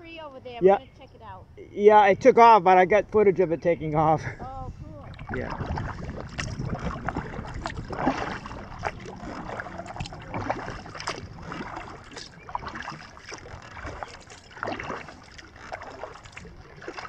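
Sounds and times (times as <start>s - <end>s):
wind rumbling on microphone: 2.8s - 17.0s
paddle water splashing and dripping: 4.8s - 17.0s.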